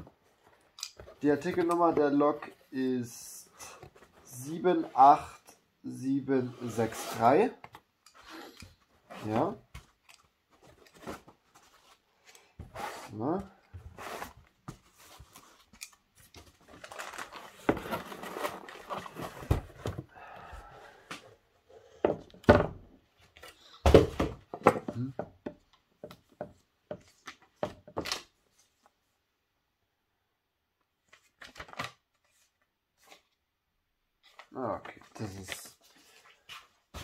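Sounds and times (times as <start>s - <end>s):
cardboard and foam rustling: 9.0s - 20.1s.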